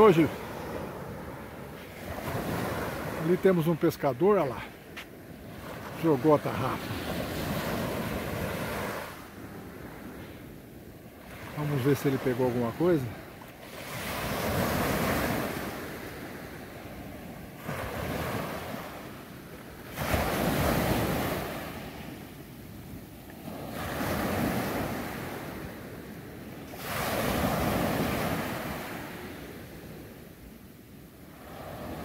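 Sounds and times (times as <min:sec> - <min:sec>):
small waves breaking on sand: 0:00.0 - 0:32.0.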